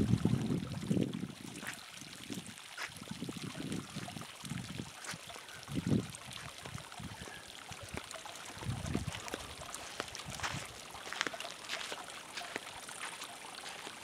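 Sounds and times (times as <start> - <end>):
water trickling over rock: 0.0 - 14.0.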